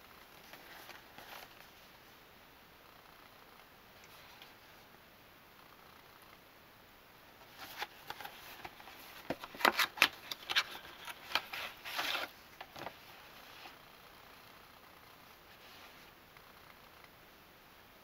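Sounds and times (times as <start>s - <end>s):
cardboard box being opened: 7.4s - 13.0s.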